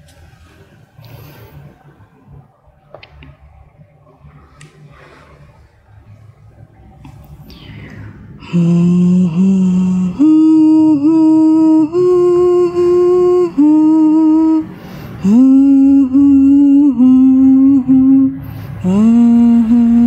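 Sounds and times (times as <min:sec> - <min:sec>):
person humming a slow tune: 0:07.5 - 0:20.0.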